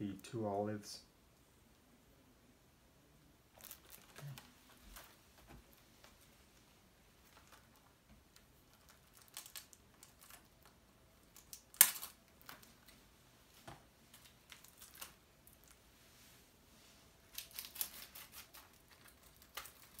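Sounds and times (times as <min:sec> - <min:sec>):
plastic wrap crinkling: 0:03.5 - 0:06.6, 0:07.2 - 0:13.0, 0:14.1 - 0:15.8, 0:17.3 - 0:20.0
sharp plastic crack: 0:08.8 - 0:12.9.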